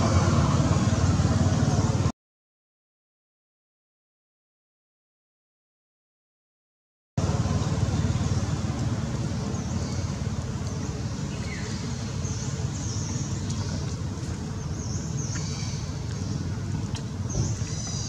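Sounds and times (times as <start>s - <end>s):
steady low rumble: 0.0s - 2.1s, 7.2s - 18.0s.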